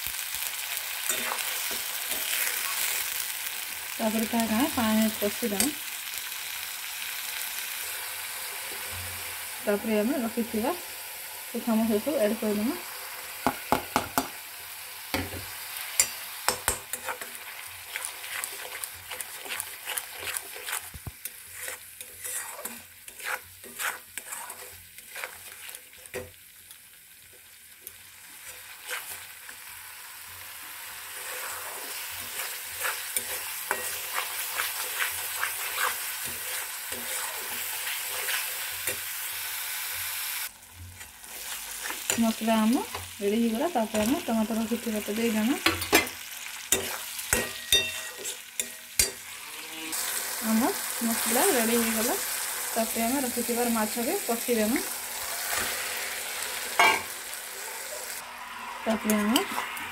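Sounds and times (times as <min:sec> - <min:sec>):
paste sizzling in oil: 0:00.0 - 0:59.9
spatula scraping and tapping pan: 0:01.0 - 0:02.9, 0:13.4 - 0:14.4, 0:15.1 - 0:26.4, 0:27.8 - 0:29.6, 0:31.2 - 0:39.1, 0:45.6 - 0:49.2.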